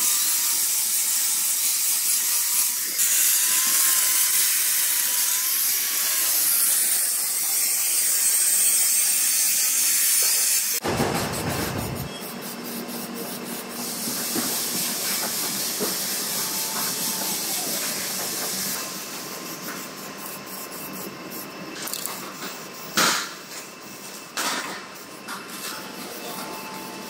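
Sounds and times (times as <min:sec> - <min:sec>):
spray paint can hissing: 0:08.8 - 0:23.2.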